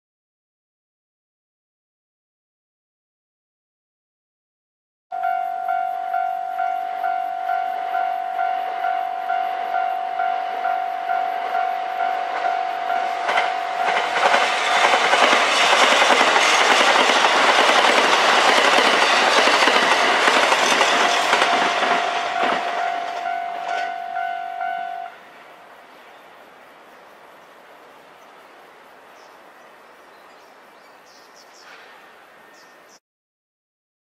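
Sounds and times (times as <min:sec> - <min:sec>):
level crossing bell ringing: 0:05.1 - 0:14.3, 0:21.0 - 0:25.1
diesel train passing: 0:05.1 - 0:29.9.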